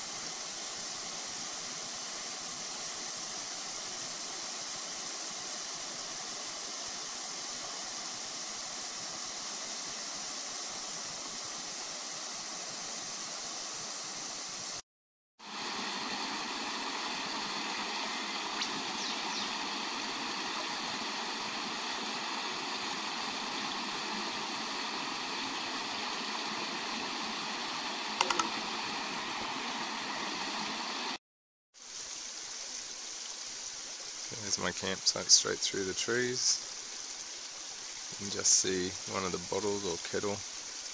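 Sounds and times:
creek water rushing: 0.0s - 14.8s, 15.4s - 31.2s, 31.8s - 40.9s
sharp clicks: 28.2s - 28.6s.

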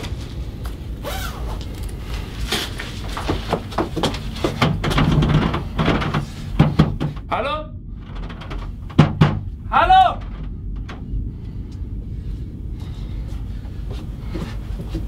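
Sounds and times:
low rumble: 0.0s - 15.0s
knocks and clatters: 2.6s - 7.3s, 7.9s - 11.9s.

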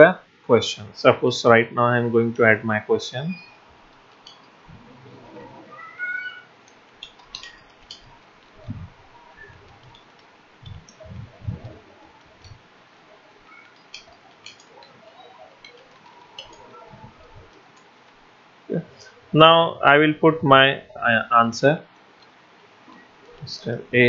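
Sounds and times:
low thumps: 4.6s - 5.8s, 8.0s - 9.8s
keyboard typing clicks: 6.7s - 8.7s, 9.4s - 12.6s, 13.6s - 15.0s.

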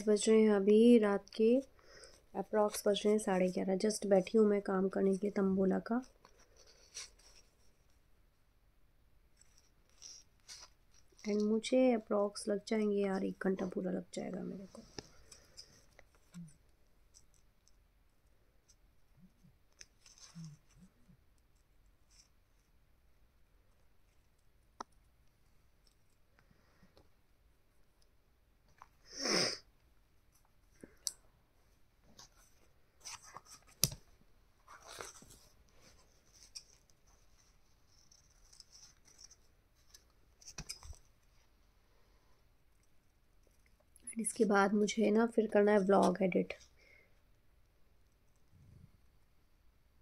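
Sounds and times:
paper rustling: 32.0s - 41.2s.

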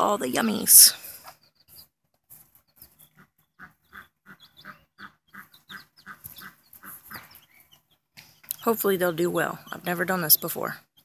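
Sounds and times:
chicks peeping: 0.7s - 11.0s
hen clucking softly: 2.8s - 8.6s.

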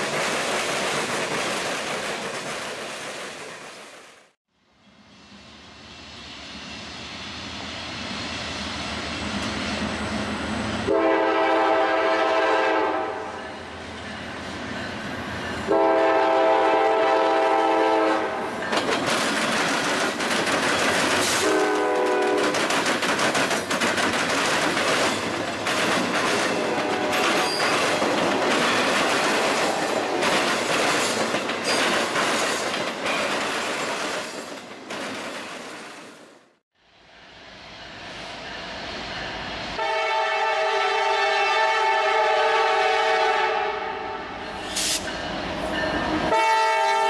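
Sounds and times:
freight train wheels clacking: 0.0s - 4.0s, 18.5s - 36.2s
locomotive air horn blasts: 10.8s - 13.4s, 15.7s - 18.5s, 21.4s - 22.5s, 26.6s - 27.4s, 39.8s - 45.1s, 46.3s - 47.0s.

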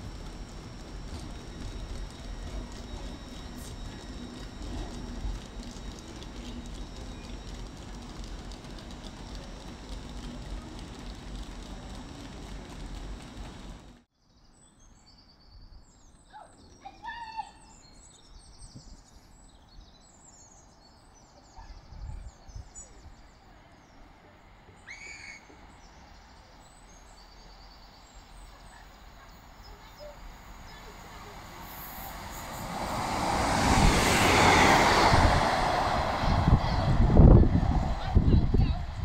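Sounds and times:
low train rumble: 0.0s - 14.1s, 19.3s - 39.0s
train approaching: 0.0s - 14.1s, 21.8s - 39.0s.

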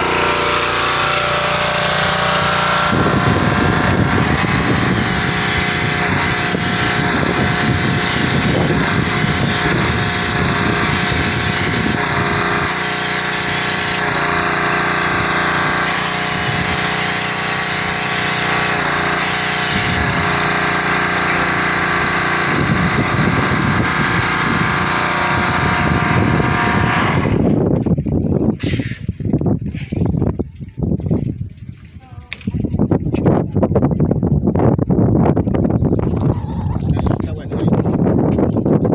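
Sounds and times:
high-pressure water spray hissing: 0.0s - 27.5s
pressure washer engine running: 0.0s - 29.0s.

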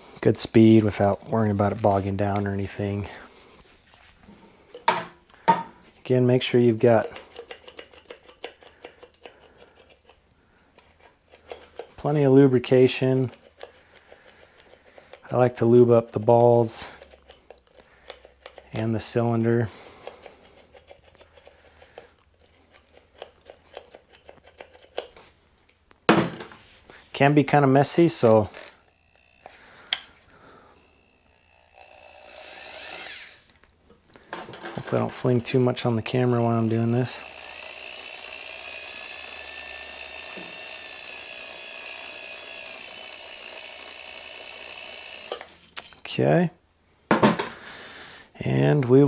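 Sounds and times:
soft clicks and squishes of oily tool: 6.9s - 12.0s
electric motor whining: 28.5s - 33.6s, 36.6s - 45.6s.

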